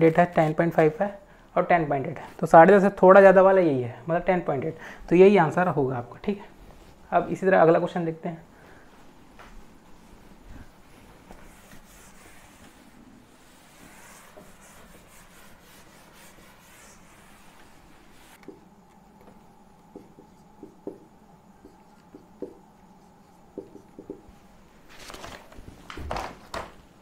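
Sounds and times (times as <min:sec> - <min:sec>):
marker writing on whiteboard: 0:11.3 - 0:24.4
paper rustling: 0:24.8 - 0:26.7.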